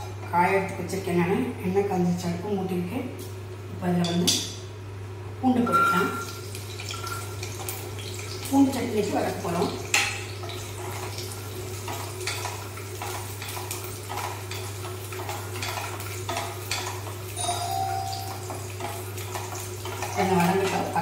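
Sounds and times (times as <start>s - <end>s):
garlic frying in hot oil: 5.7s - 21.0s.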